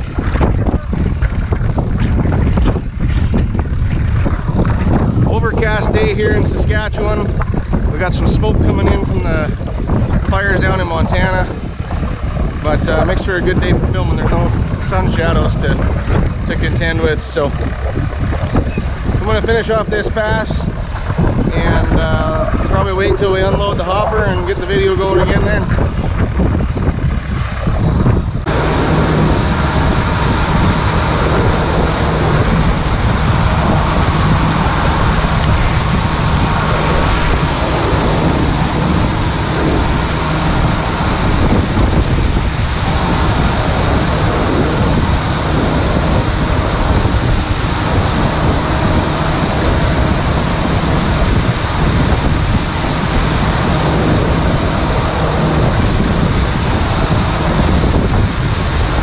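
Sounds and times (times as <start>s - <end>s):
combine machinery humming: 27.1s - 59.0s.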